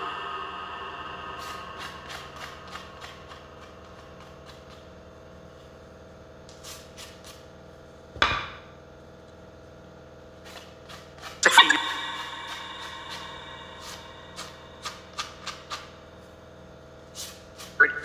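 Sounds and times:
faint steady hum: 0.0 - 6.6, 11.4 - 17.0.

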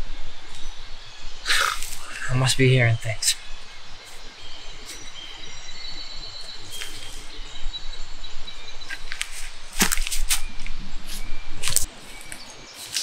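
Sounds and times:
faint bird chirps: 0.0 - 13.0
outdoor hush: 0.0 - 13.0
sharp crackles: 1.4 - 4.2, 8.8 - 13.0.

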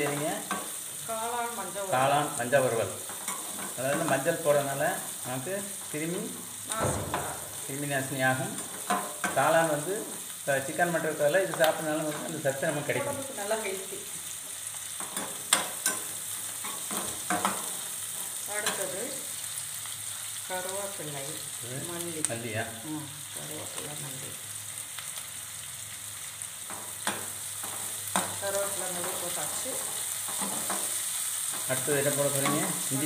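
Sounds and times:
onions sizzling in hot oil: 0.0 - 33.0
metal spoon scraping a pan: 3.0 - 4.4, 8.6 - 9.5, 15.0 - 18.9, 26.7 - 33.0.

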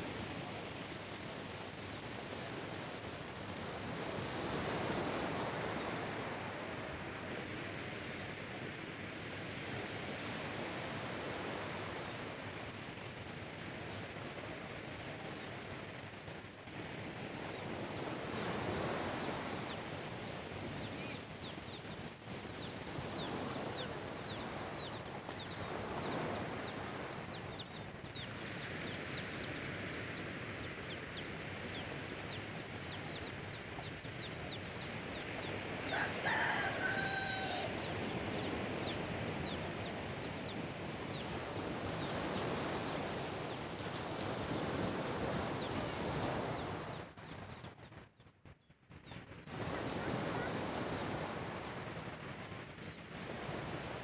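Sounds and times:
small waves washing onto beach: 0.0 - 47.7, 49.4 - 54.0
rooster crowing: 35.8 - 38.0.

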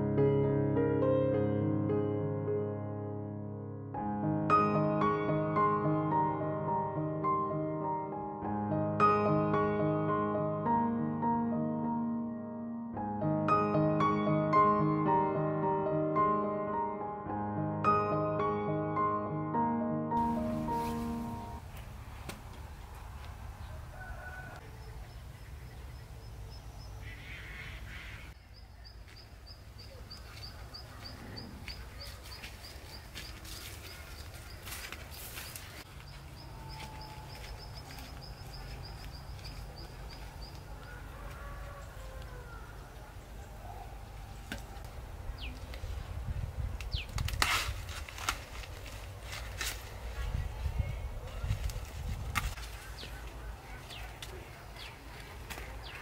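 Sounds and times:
corn leaves rustling: 20.2 - 23.3, 31.6 - 40.6, 46.8 - 56.0
birds calling: 24.7 - 44.4
corn ears snapping off stalks: 46.8 - 49.9, 51.6 - 53.4.

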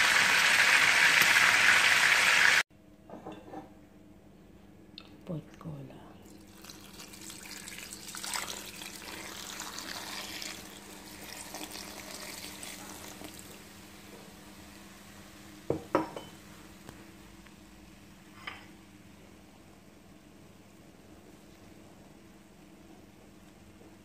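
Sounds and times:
liquid hissing in hot pot: 7.5 - 13.6.

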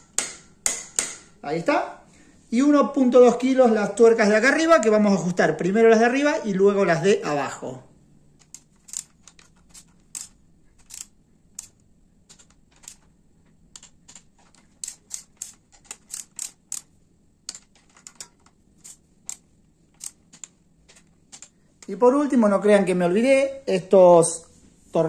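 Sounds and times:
torque wrench clicking: 8.4 - 11.8, 13.8 - 16.9, 17.5 - 20.5.

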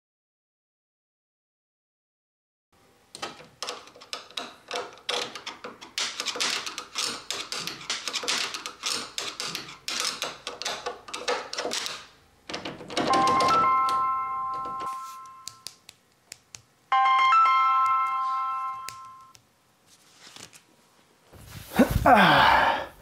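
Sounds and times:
doorknob rattling: 3.2 - 14.0
phone ringtone: 13.1 - 15.6, 16.9 - 19.4.

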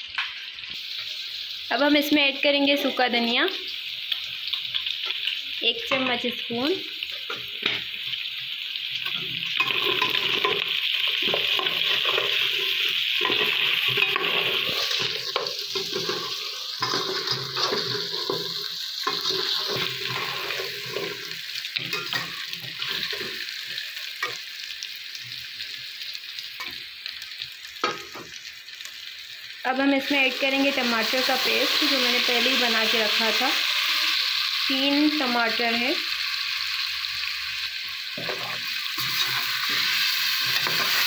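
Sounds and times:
meat sizzling in oil: 0.0 - 41.0
metal spatula scraping pot: 9.2 - 23.5, 38.2 - 41.0.

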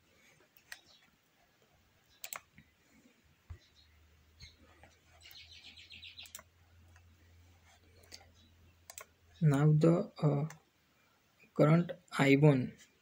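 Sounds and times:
faint clicks: 2.1 - 2.7, 6.2 - 7.1, 8.0 - 9.1
high chirping trill: 3.6 - 6.5.

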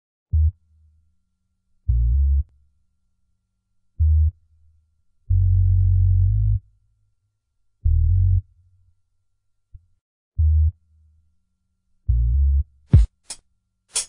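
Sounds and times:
deep synthesizer bass notes: 0.3 - 0.6, 5.3 - 6.6, 7.8 - 8.4, 10.4 - 10.8, 12.1 - 12.7.

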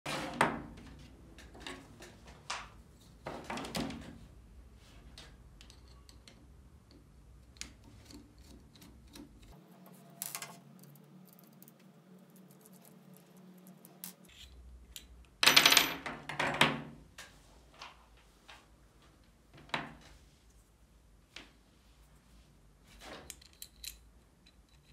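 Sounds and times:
tools clattering on wooden table: 15.4 - 16.7.

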